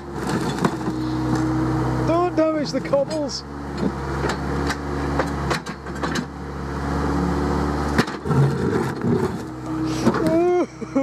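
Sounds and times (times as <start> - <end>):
excavator diesel engine running: 0.0 - 11.0
bucket scraping earth: 8.1 - 10.3.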